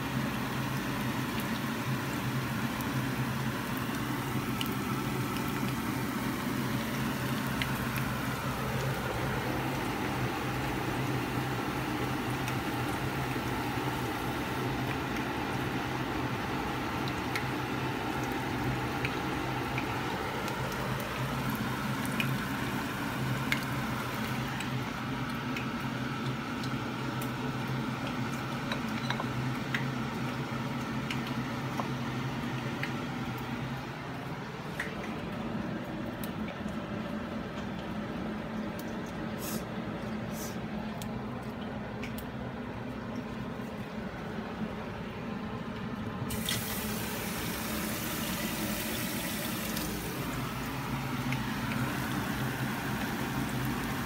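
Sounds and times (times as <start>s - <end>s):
oil popping: 0.3s - 54.0s
shrimp sizzling in hot oil: 46.3s - 54.0s.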